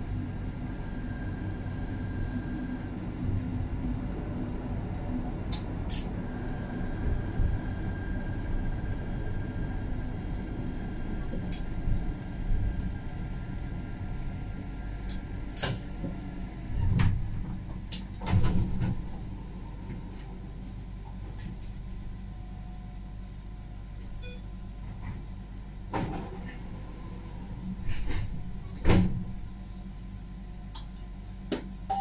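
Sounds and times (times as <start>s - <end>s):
tram rumble: 0.0s - 32.0s.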